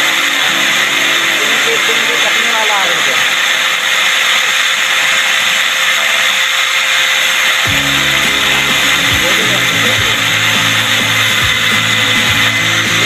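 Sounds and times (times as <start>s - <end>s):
angle grinder whine: 0.0s - 13.0s
background music: 7.7s - 13.0s.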